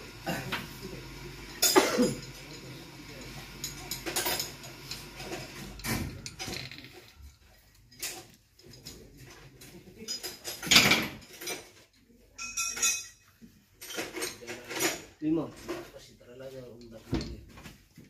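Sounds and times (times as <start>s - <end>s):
metallic clinks and rattles: 1.4s - 15.9s.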